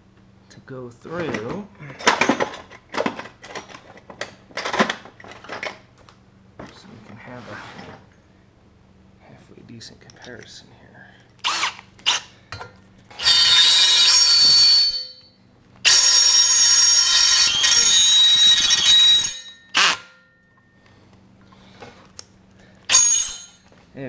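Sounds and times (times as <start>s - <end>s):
drill squealing into steel: 11.4s - 12.3s, 13.2s - 20.1s, 22.9s - 23.6s.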